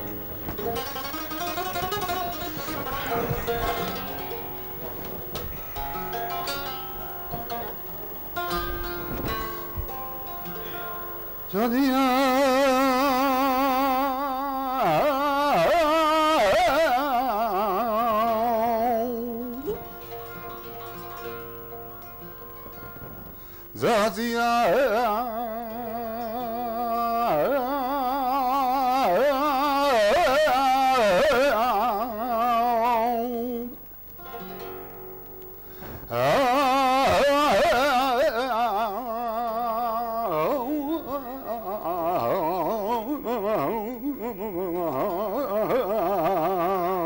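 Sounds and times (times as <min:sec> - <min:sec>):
man singing flamenco: 0:00.0 - 0:21.0, 0:23.7 - 0:34.3, 0:35.9 - 0:47.0
flamenco guitar: 0:00.0 - 0:47.0.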